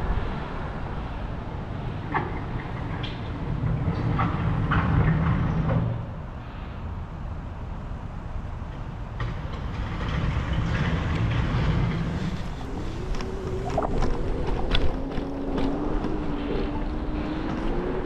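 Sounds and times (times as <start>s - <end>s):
wind and rolling rumble: 0.0s - 18.0s.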